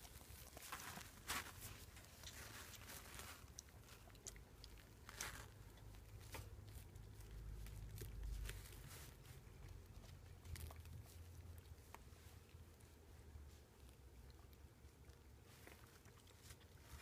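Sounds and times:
puppies moving over paper pads: 0.0 - 4.1, 4.8 - 11.2.

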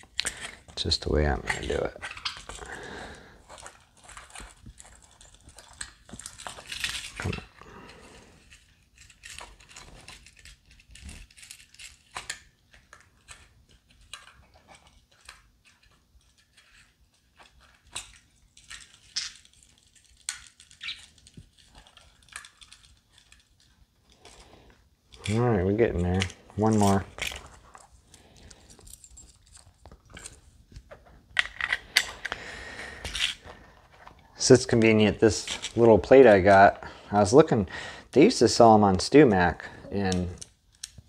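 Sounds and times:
small parts clicking and tapping: 8.4 - 24.5, 40.0 - 41.0.

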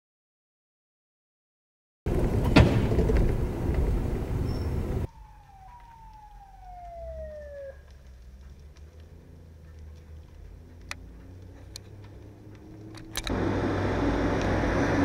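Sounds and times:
emergency siren wailing: 5.0 - 14.4.

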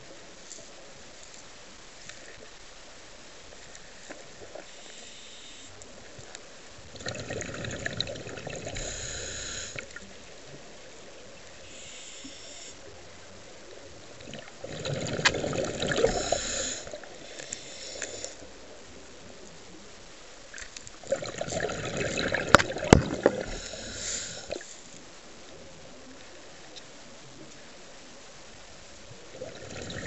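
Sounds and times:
regulator inhale hiss: 4.6 - 5.8, 8.6 - 10.0, 11.6 - 12.8, 15.9 - 18.5, 23.2 - 25.0
exhaled bubbles underwater: 6.9 - 10.0, 14.1 - 17.3, 21.0 - 24.6, 29.3 - 30.0.

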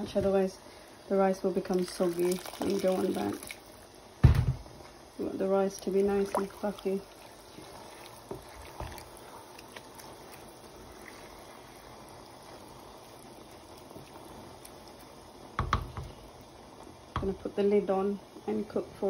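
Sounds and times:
food simmering in a pan: 0.0 - 19.0
spatula knocking a pan: 15.6 - 16.1.

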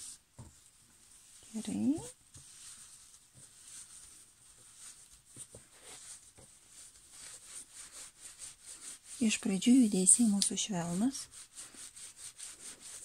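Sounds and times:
towel and plastic film rustling: 0.0 - 13.0.

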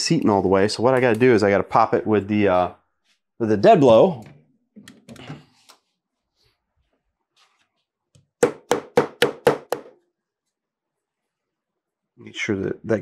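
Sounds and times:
hammer knocking: 8.4 - 10.0.

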